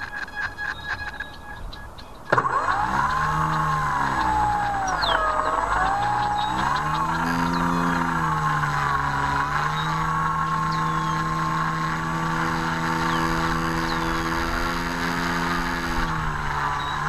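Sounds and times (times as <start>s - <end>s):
model plane electric motor whine: 0.1s - 17.0s.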